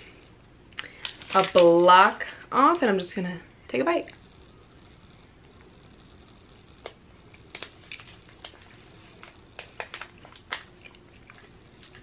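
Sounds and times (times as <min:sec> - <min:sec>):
chewing crunchy chocolate: 0:06.8 - 0:12.0.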